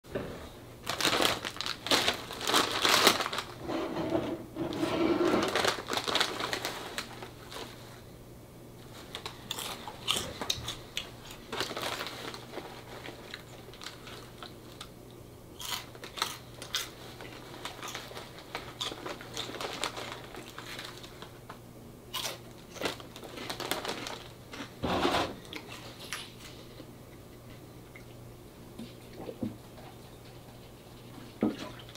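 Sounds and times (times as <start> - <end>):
chip bag crinkling: 0.8 - 3.7, 4.7 - 7.8, 8.9 - 14.9, 15.6 - 24.8
potato chips crunching: 9.1 - 14.9, 15.6 - 21.3, 22.1 - 24.8.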